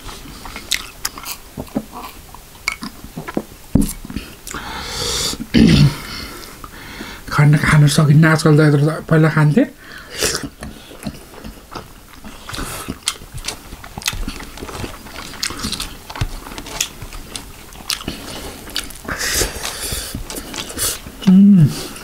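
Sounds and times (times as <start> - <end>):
close chewing with mouth clicks: 0.0 - 4.6, 10.2 - 22.0.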